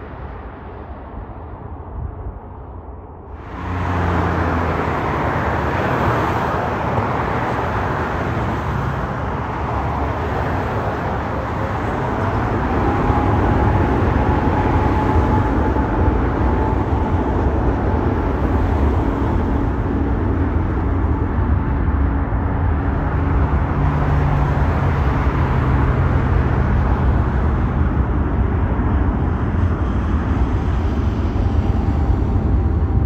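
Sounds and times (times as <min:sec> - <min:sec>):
jet engines low rumble: 0:00.0 - 0:33.0
faint whining tones: 0:11.1 - 0:22.9.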